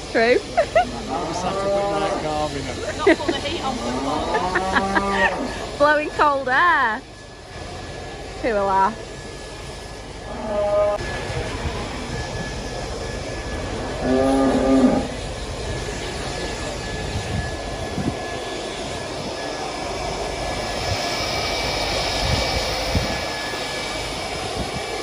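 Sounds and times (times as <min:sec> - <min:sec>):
electric blower rushing: 0:00.0 - 0:25.0
cow mooing: 0:01.1 - 0:02.3, 0:03.8 - 0:05.6, 0:10.3 - 0:11.0, 0:14.0 - 0:15.2.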